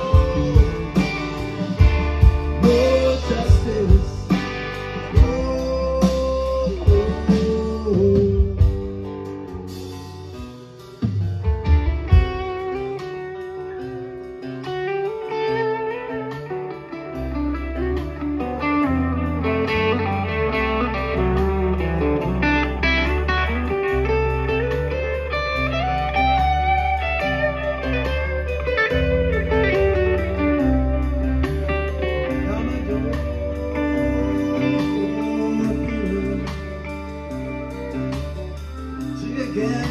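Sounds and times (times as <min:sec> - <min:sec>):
bass line: 0:00.0 - 0:13.0, 0:17.2 - 0:39.9
steady drum beat: 0:00.0 - 0:13.5, 0:28.9 - 0:39.9
electric guitar lines: 0:00.0 - 0:39.9
live rock band playing: 0:00.0 - 0:39.9
low drum hits: 0:11.0 - 0:12.7.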